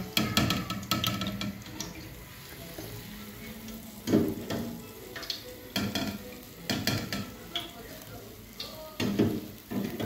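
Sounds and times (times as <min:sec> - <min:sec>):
dough sizzling in hot oil: 0:00.0 - 0:10.0.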